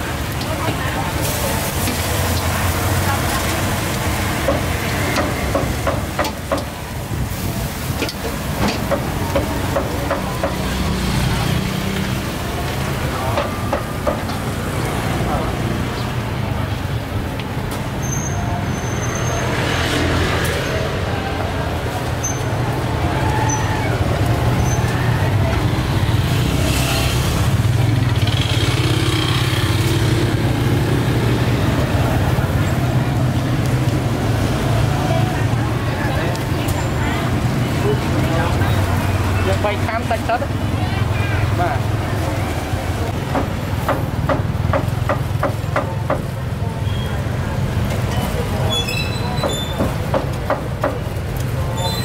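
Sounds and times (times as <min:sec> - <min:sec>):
low rumble of traffic: 0:00.0 - 0:52.0
vehicle engines running: 0:00.0 - 0:52.0
faint high squeaks: 0:18.0 - 0:19.5, 0:48.6 - 0:49.8.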